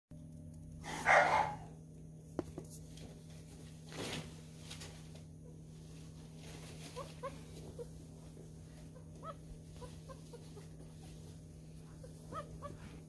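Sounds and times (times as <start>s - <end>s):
puppy squeaking: 8.9s - 10.9s, 11.9s - 13.0s.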